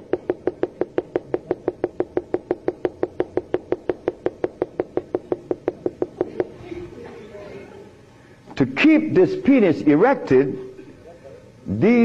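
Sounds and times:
marker tapping on whiteboard: 0.0 - 6.6.

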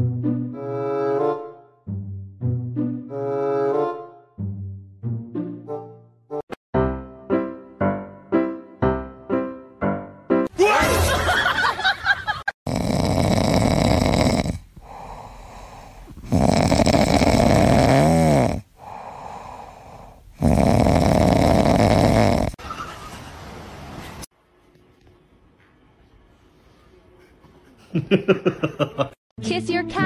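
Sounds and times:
cat snoring: 12.7 - 22.6.

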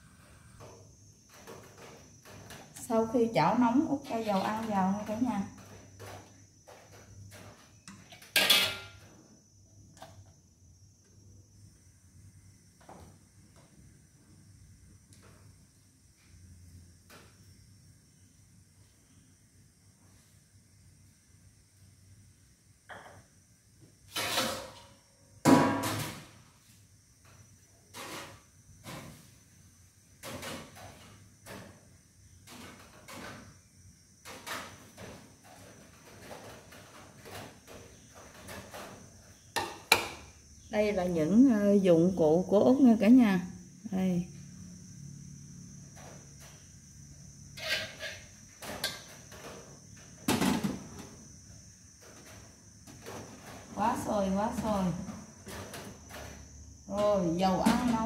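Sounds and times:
insect trill: 0.0 - 58.0
kitchen items knocking and clattering: 0.6 - 9.2, 24.1 - 26.4, 30.2 - 33.6, 34.2 - 40.4, 47.6 - 51.2, 52.0 - 58.0
metal kitchenware clattering: 7.9 - 9.0, 47.6 - 49.1.

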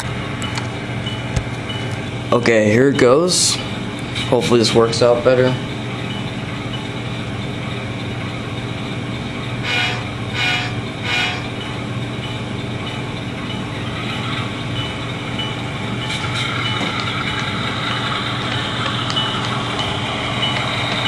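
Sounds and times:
diesel locomotive engine through speaker: 0.0 - 21.0
short horn blasts: 9.6 - 11.5.

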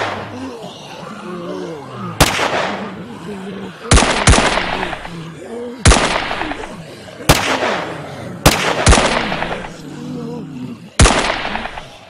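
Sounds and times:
pistol gunshots with echo: 0.0 - 0.2, 2.2 - 2.9, 3.9 - 5.1, 5.8 - 6.7, 7.3 - 9.8, 11.0 - 11.9.

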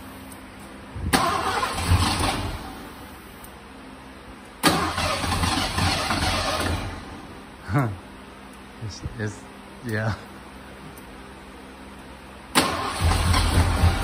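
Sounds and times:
starter cranking engine: 1.2 - 2.6, 4.6 - 7.0, 12.6 - 14.0.

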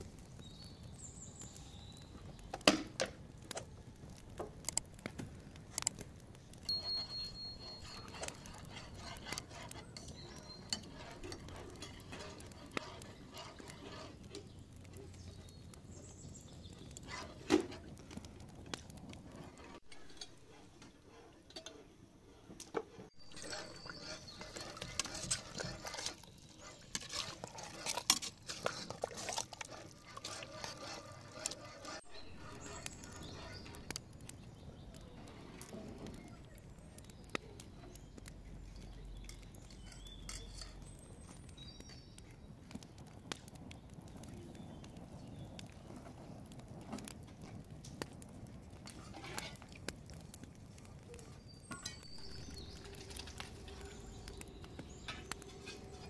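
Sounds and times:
metal pots and utensils clinking: 6.7 - 13.7, 19.6 - 21.9, 23.2 - 33.7, 39.2 - 41.4, 51.6 - 56.0.

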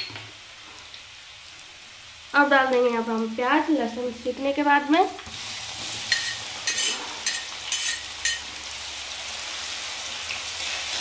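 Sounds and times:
onion sizzling in hot oil: 0.0 - 11.0
spatula scraping: 5.8 - 8.4.

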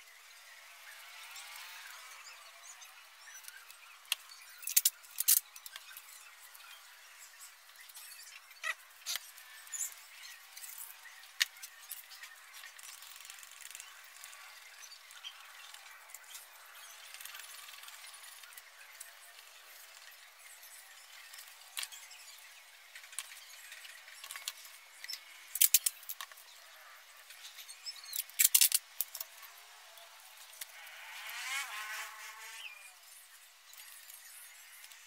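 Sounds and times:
sharp clicks and knocks of tools: 24.2 - 26.4, 28.2 - 29.3.

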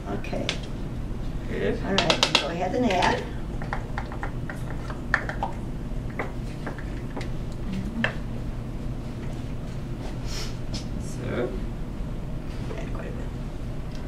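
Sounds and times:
measuring cup tapping mixing bowl: 1.9 - 7.3.

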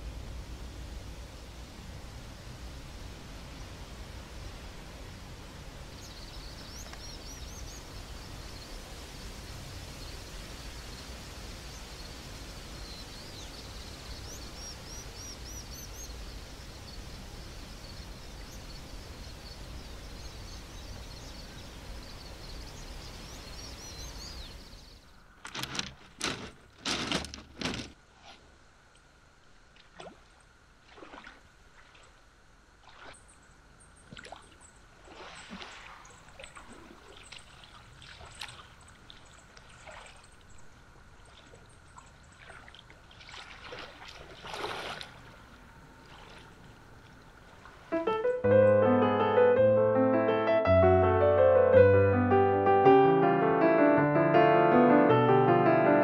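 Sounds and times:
outdoor hiss: 0.0 - 34.0, 44.2 - 56.0
songbird singing: 5.8 - 27.9, 47.9 - 49.6
water splashing: 29.7 - 33.2, 34.1 - 40.5, 41.2 - 48.1.

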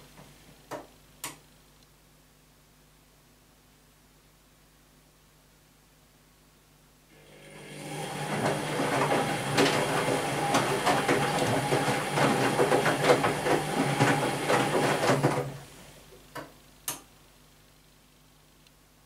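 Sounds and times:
washing machine motor whine: 7.1 - 16.0
laundry and water sloshing in drum: 7.4 - 15.8.

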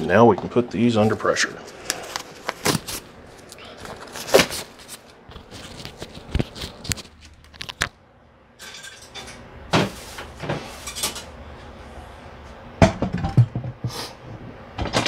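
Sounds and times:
rustle of gloves being removed: 1.0 - 7.8.

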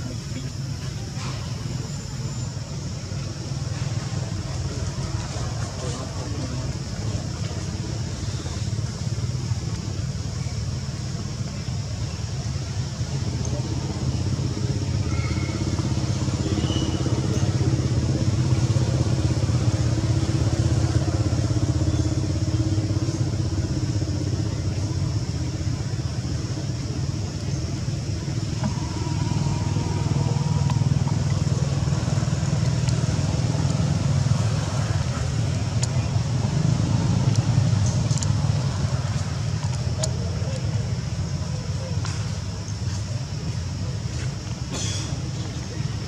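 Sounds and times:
faint hum: 0.0 - 46.0
low rumble: 17.2 - 40.0.

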